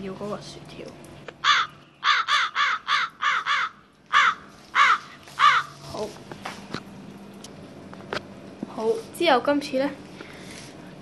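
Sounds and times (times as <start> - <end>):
crow cawing: 1.4 - 5.8.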